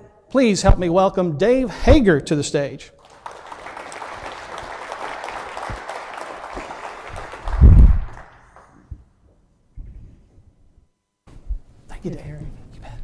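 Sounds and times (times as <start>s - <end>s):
audience applause: 3.0s - 8.8s
loud low thump: 7.6s - 8.2s.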